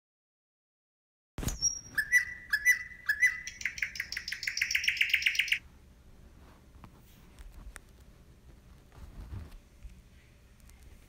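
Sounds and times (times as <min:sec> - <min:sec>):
songbird chirping and trilling: 0:01.5 - 0:05.6.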